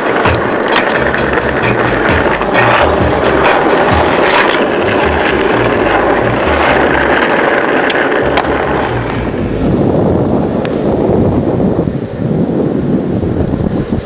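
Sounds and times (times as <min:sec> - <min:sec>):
skateboard wheels rolling on asphalt: 0:00.0 - 0:14.0.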